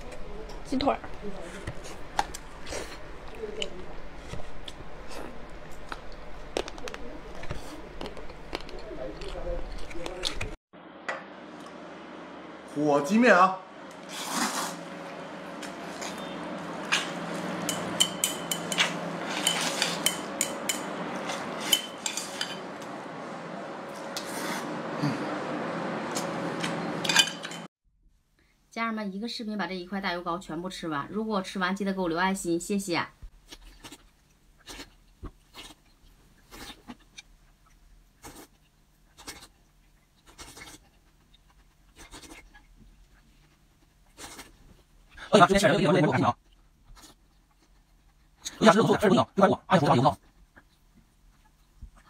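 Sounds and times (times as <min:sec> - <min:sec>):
scratchy eating sounds: 0:01.2 - 0:10.6, 0:13.9 - 0:18.0, 0:18.6 - 0:22.6, 0:23.9 - 0:25.3, 0:33.4 - 0:49.0, 0:49.7 - 0:52.0
noodles being slurped: 0:14.0 - 0:14.9.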